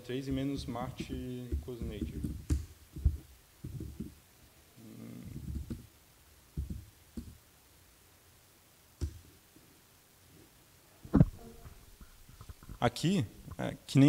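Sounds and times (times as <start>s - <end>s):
laptop keyboard typing: 0.6s - 4.1s, 5.4s - 5.9s.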